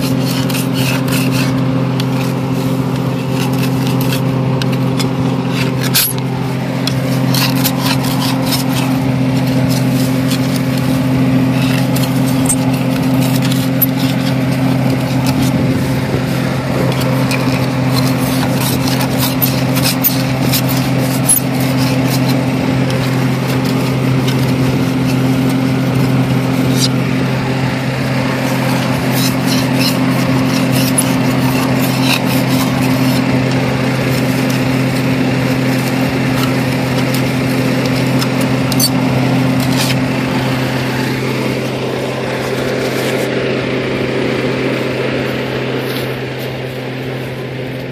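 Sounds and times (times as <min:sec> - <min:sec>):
soil scraped off metal plow: 0:00.0 - 0:47.9
tractor engine idling: 0:00.0 - 0:47.9.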